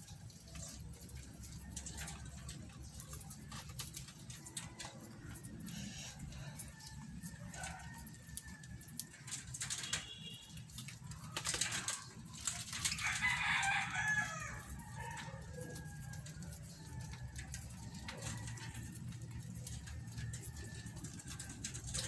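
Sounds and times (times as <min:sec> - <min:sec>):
wing flutters: 0:00.0 - 0:22.0
rooster crowing: 0:04.4 - 0:09.1, 0:12.9 - 0:22.0.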